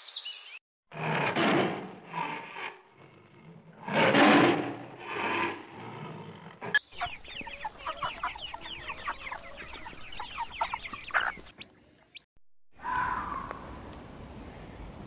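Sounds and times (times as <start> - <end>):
tiger growling: 0.9 - 6.8
chicks peeping: 6.8 - 12.2.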